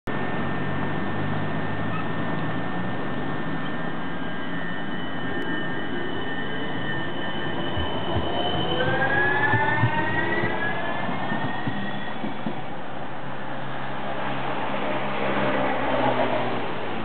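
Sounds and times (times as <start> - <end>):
tram drive whine: 0.1 - 17.0.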